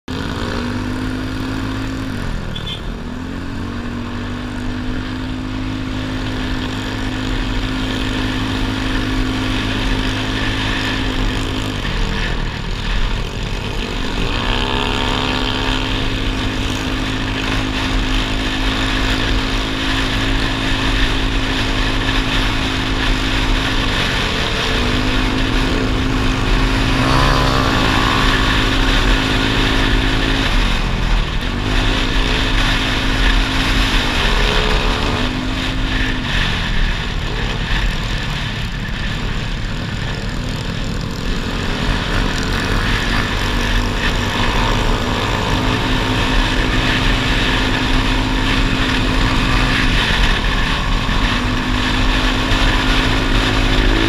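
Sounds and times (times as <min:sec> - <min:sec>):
motorcycle engine running: 0:00.0 - 0:54.0
wind rumble on microphone: 0:03.9 - 0:54.0.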